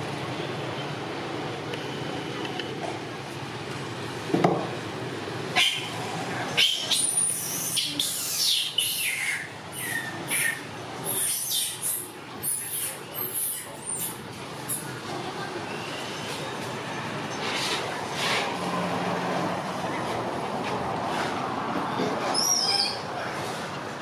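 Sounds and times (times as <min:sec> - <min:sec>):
macaques squealing: 0:05.5 - 0:14.9, 0:22.3 - 0:23.1.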